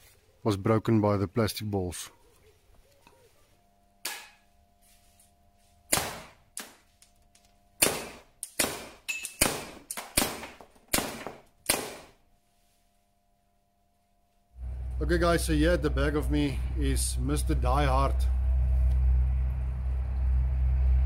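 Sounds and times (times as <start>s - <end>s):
air pistol shots: 5.9s - 6.8s, 7.8s - 12.2s.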